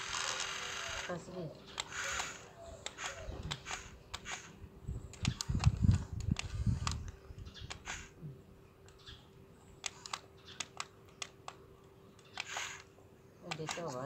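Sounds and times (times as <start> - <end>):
toy excavator plastic clicks: 0.0 - 1.1, 1.7 - 8.1, 9.8 - 11.6, 12.2 - 14.0.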